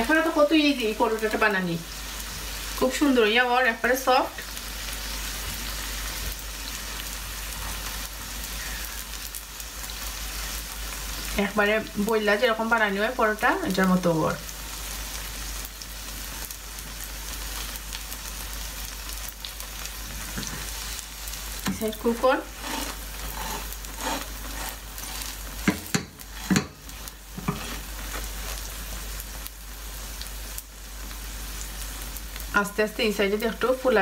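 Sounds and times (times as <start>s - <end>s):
bread sizzling in oil: 0.0s - 34.0s
spatula knocking on pan: 25.6s - 26.8s.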